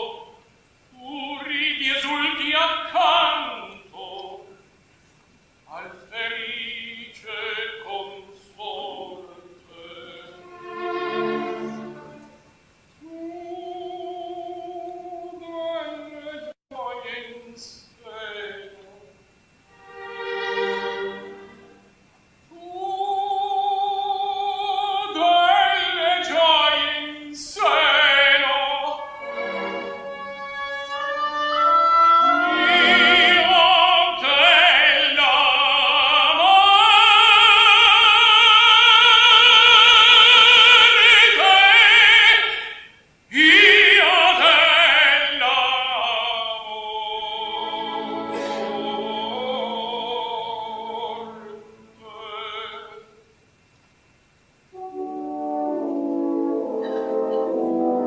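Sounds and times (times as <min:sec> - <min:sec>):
operatic tenor singing: 0:00.0 - 0:04.6, 0:05.7 - 0:21.8, 0:22.5 - 0:53.2, 0:54.7 - 0:58.0
orchestra playing: 0:09.9 - 0:12.7, 0:19.7 - 0:22.1, 0:27.6 - 0:34.9, 0:47.4 - 0:52.0, 0:54.8 - 0:58.0.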